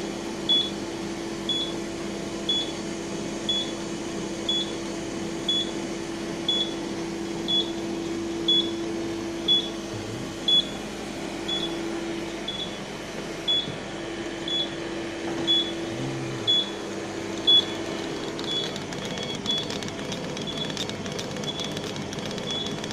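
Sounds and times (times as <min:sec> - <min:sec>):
laser cutter equipment humming: 0:00.0 - 0:22.9
faint rapid ticking: 0:17.4 - 0:22.9.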